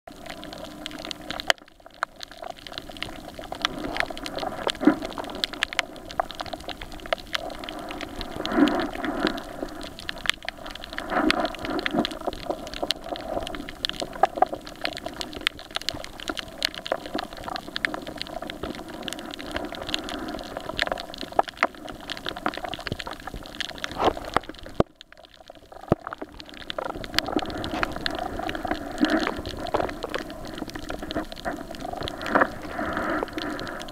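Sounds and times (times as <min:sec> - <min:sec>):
sharp clicks and crackles: 0:00.1 - 0:33.9
underwater water hiss: 0:07.3 - 0:14.4, 0:27.0 - 0:33.9.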